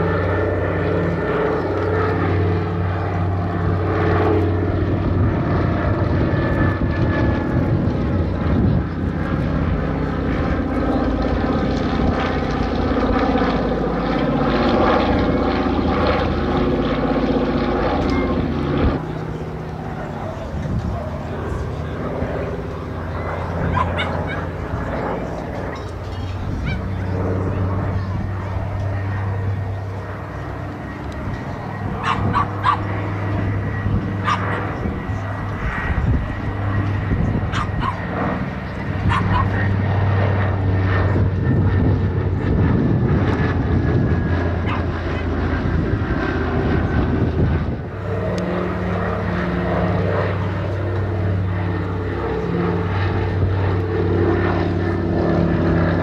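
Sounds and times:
propeller plane droning past: 0:00.0 - 0:56.0
sharp engine barks: 0:23.5 - 0:24.7, 0:32.0 - 0:32.9, 0:34.2 - 0:34.9, 0:37.5 - 0:38.0, 0:39.0 - 0:39.6.

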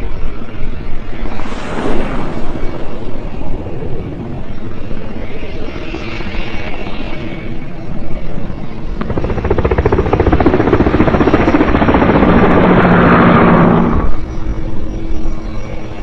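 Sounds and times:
helicopter rotor blades chopping: 0:08.7 - 0:14.3.

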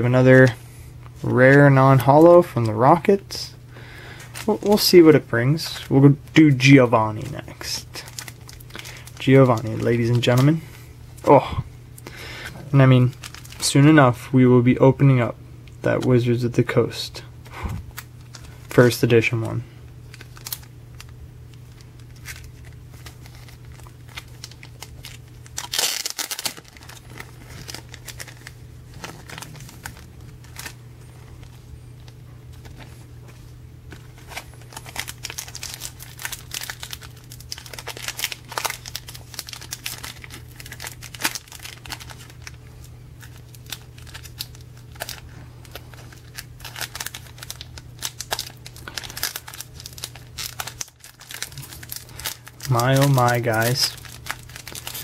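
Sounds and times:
foil wrapper crinkling and tearing: 0:04.1 - 0:10.7, 0:13.0 - 0:13.7, 0:20.0 - 0:33.0, 0:33.9 - 0:55.0.

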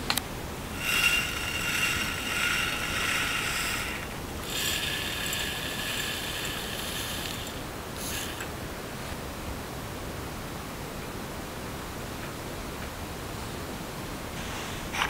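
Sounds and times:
sugar pouring into glass: 0:00.8 - 0:08.5.

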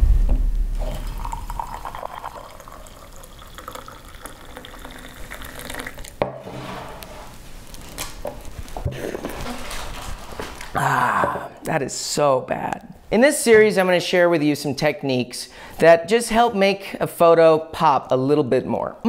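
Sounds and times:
sharp knock: 0:00.0 - 0:00.8
coffee pouring into a mug: 0:00.8 - 0:06.2.

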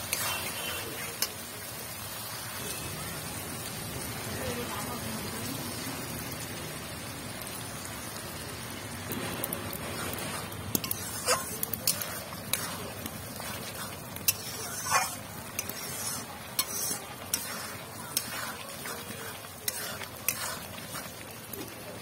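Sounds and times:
metal spatula scraping pan: 0:00.0 - 0:01.4, 0:09.6 - 0:21.3
masala sizzling and bubbling: 0:00.0 - 0:22.0.

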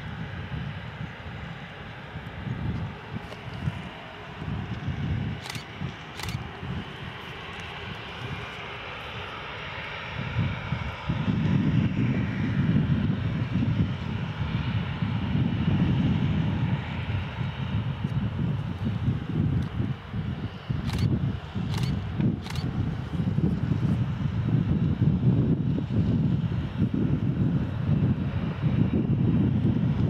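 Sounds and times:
jet engines whining: 0:02.2 - 0:10.9.

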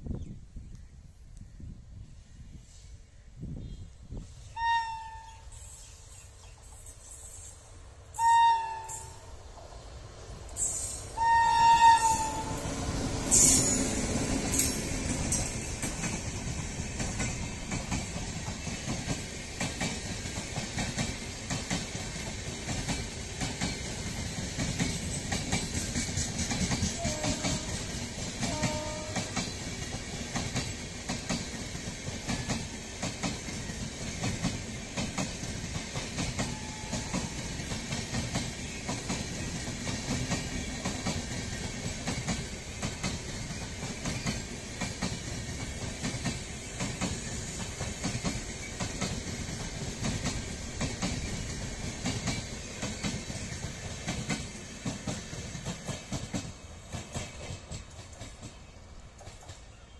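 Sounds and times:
train wheels clickety-clack: 0:10.4 - 0:59.9.

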